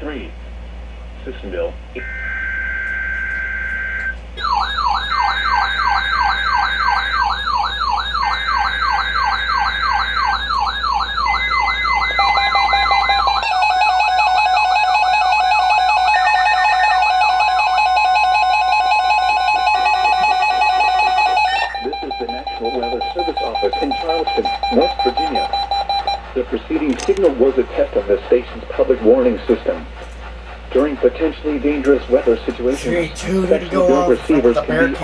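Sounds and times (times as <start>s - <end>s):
screeching digital header tones: 2.0s - 26.2s
high beeping alarm tones: 2.0s - 26.3s
warbling siren: 2.0s - 26.3s.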